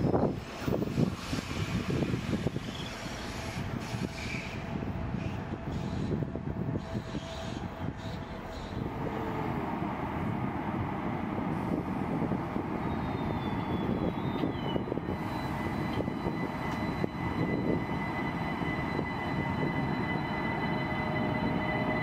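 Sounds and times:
train power car rumbling: 0:00.0 - 0:22.0
traction equipment whine: 0:01.8 - 0:22.0
steady high whining tones: 0:13.0 - 0:22.0.

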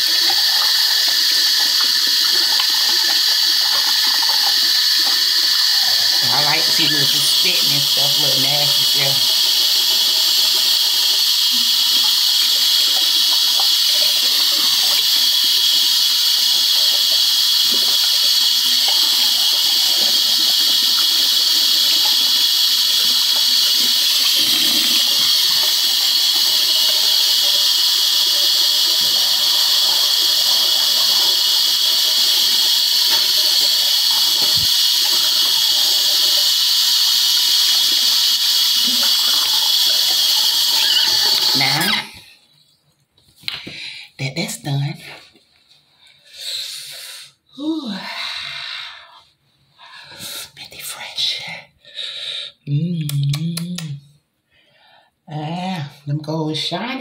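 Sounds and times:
tap water running into sink: 0:00.0 - 0:42.3.

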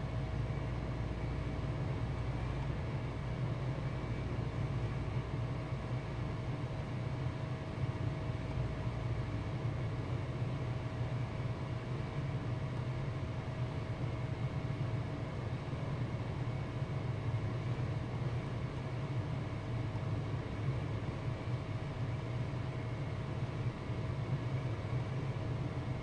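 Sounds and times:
low background hum: 0:00.0 - 0:26.0.

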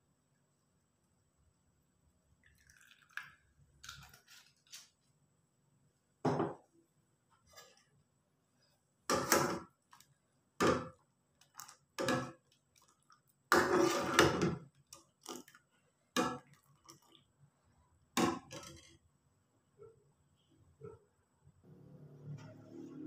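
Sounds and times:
ladle scraping metal saucepan: 0:13.5 - 0:14.5.

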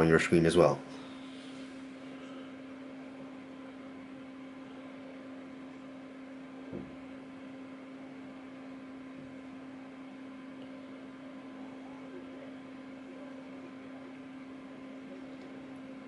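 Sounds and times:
electrical hum with hiss: 0:00.0 - 0:16.0
soft knock: 0:06.7 - 0:07.0.

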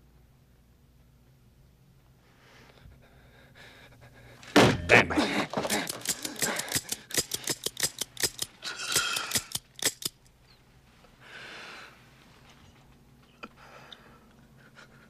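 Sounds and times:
rapid sharp metallic clicks: 0:05.6 - 0:10.3.

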